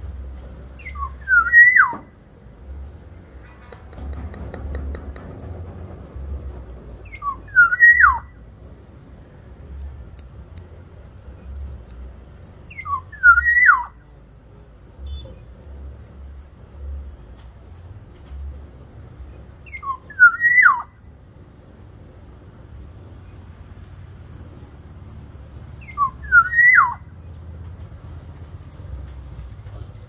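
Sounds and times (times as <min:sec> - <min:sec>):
bird fluting whistles: 0:00.8 - 0:02.0, 0:07.0 - 0:08.3, 0:12.7 - 0:13.9, 0:19.7 - 0:20.9, 0:25.8 - 0:27.1.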